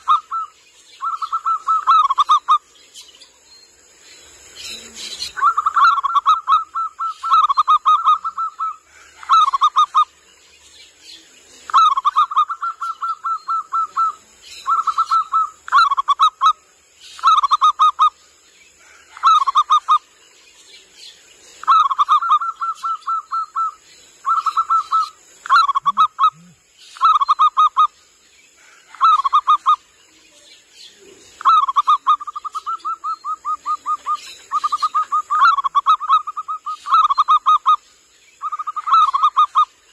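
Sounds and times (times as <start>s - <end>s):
dove cooing: 4.6s - 10.1s, 21.6s - 27.7s, 31.0s - 37.7s.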